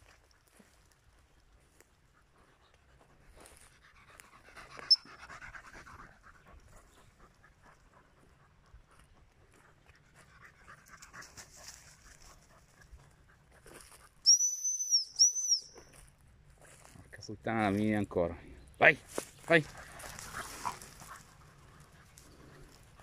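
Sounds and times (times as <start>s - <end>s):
dog panting: 2.0s - 14.2s, 19.6s - 23.0s
high whistle blast: 14.3s - 15.7s.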